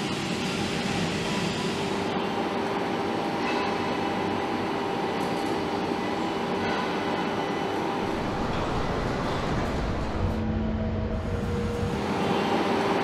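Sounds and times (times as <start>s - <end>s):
jet engine running: 7.8s - 13.0s.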